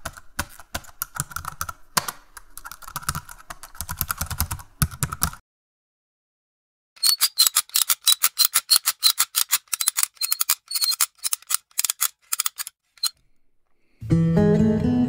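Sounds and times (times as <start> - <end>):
acoustic guitar music: 14.0 - 15.0.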